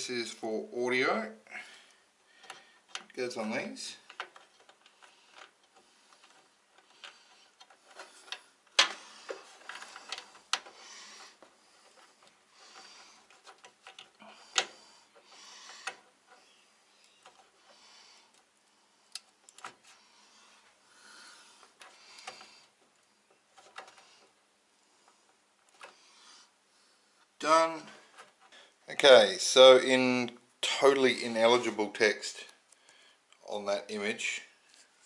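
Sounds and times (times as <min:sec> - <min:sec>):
plastic connectors clicking: 0:12.2 - 0:16.4.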